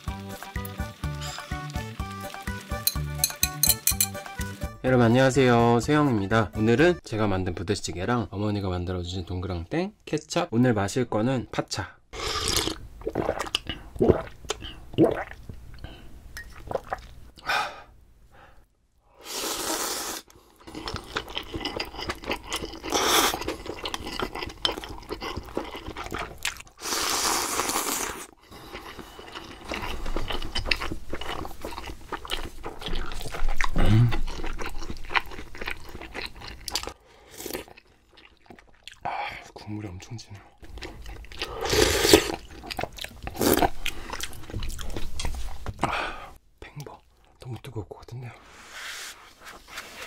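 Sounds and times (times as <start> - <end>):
crunching and chewing: 20.6 - 39.0.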